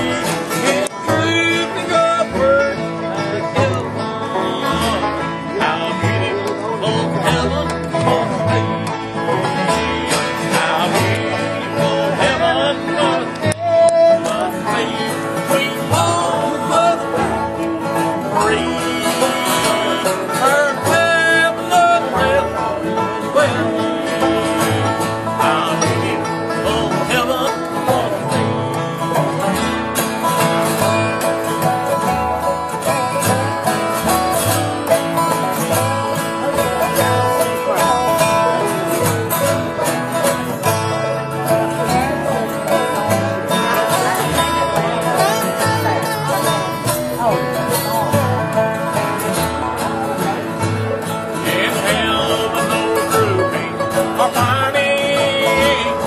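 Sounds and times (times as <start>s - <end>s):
banjo rolls: 0.0s - 56.0s
resonator guitar: 0.0s - 56.0s
strummed acoustic guitars: 0.0s - 56.0s
upright bass: 0.0s - 56.0s.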